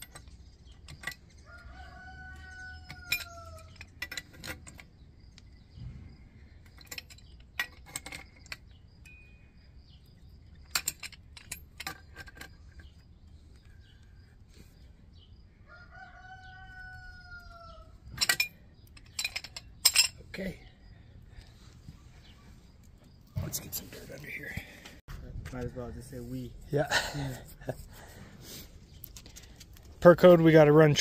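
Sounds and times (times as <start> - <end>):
pipe wrench clinking on metal fittings: 0.0 - 1.5, 2.2 - 5.0, 6.6 - 9.7, 10.5 - 13.7, 18.1 - 20.6.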